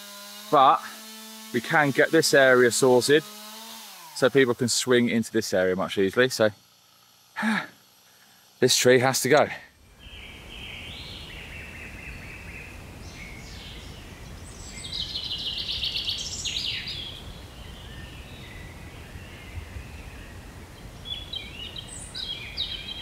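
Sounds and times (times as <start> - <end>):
songbirds singing and chirping: 9.9 - 23.0.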